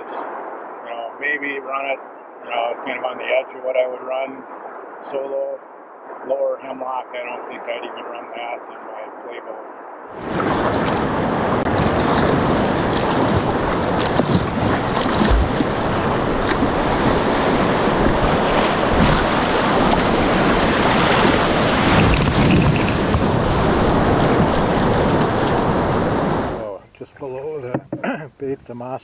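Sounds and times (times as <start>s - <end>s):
low thumps: 10.3s - 25.2s.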